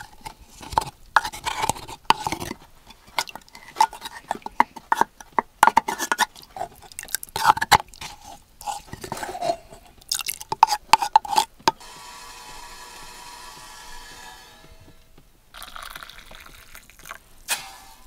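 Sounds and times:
wooden spoon scraping clay mug: 0:00.0 - 0:11.8.

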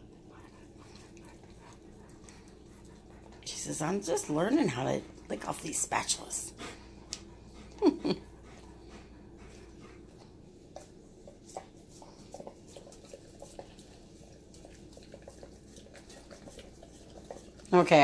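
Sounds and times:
dog licking metal bowl: 0:00.0 - 0:06.2, 0:10.7 - 0:18.0.

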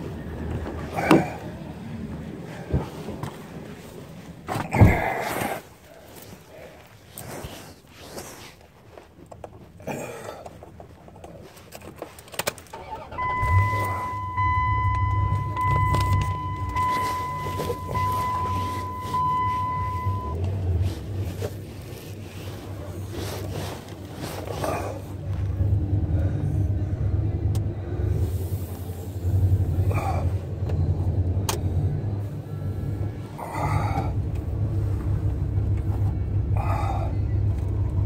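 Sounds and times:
car engine starting and idling: 0:00.0 - 0:38.0
rustling and clicks inside car: 0:00.0 - 0:38.0
high electronic warning tone: 0:13.2 - 0:20.4.

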